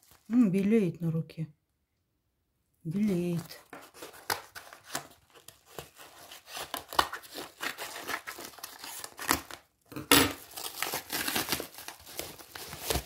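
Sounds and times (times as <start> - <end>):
plastic crinkling and rustling: 0.0 - 0.6, 2.9 - 13.0
scissors cutting plastic: 3.7 - 9.6, 10.2 - 13.0.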